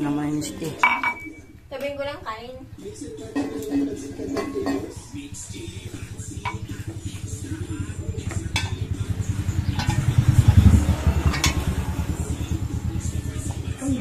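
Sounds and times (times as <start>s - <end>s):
spoons clinking on plates: 0.7s - 1.5s, 3.2s - 5.3s, 6.2s - 7.0s, 8.3s - 9.0s, 9.6s - 10.2s, 11.3s - 11.7s
motorcycle passing by: 2.6s - 14.0s.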